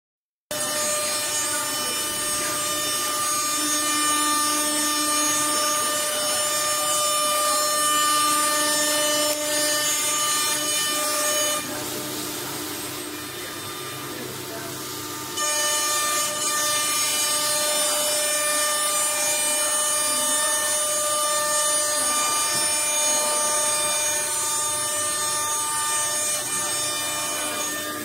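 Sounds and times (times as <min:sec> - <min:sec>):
router spindle whine: 0:00.5 - 0:28.0
hiss of metal cutting: 0:10.0 - 0:18.0.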